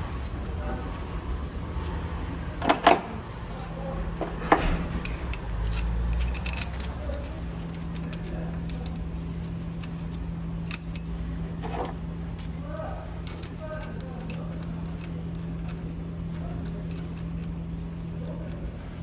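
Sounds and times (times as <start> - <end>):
low steady hum: 0.0 - 19.0
metal clinking and knocking: 2.6 - 3.2, 4.2 - 12.0, 13.2 - 18.6
wrench clicking: 5.0 - 9.1.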